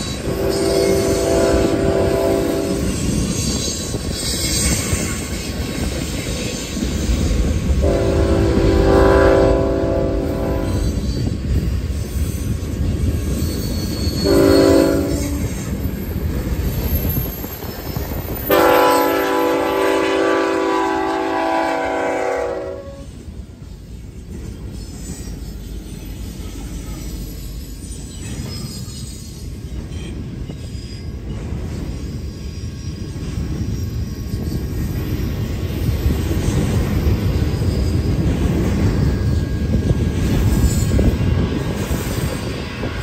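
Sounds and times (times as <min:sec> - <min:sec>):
locomotive air horn blasts: 0:00.2 - 0:02.9, 0:07.8 - 0:10.9, 0:14.2 - 0:15.6, 0:18.5 - 0:23.1
freight cars clickety-clack: 0:24.0 - 0:43.0.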